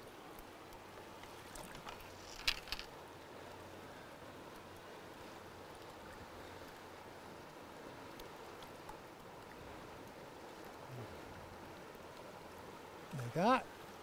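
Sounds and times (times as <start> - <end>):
river current rushing: 0.0 - 14.0
faint small ticks: 0.3 - 4.9, 5.7 - 10.8.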